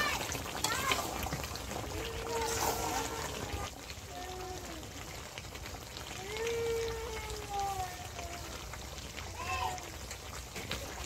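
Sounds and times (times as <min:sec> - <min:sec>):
curry sizzling in a pot: 0:00.0 - 0:11.0
metal spatula scraping a pot: 0:02.2 - 0:03.7.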